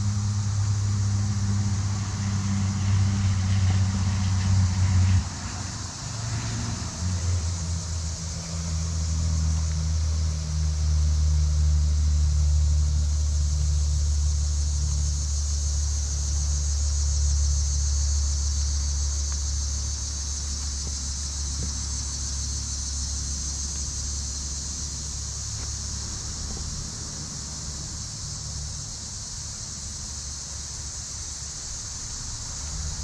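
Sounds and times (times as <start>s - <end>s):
engine running with low hum: 0.0s - 33.0s
steady high hiss: 5.3s - 33.0s.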